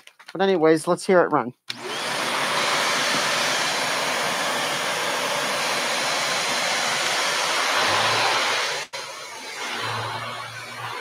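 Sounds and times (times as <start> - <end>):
vacuum cleaner running: 1.7 - 11.0.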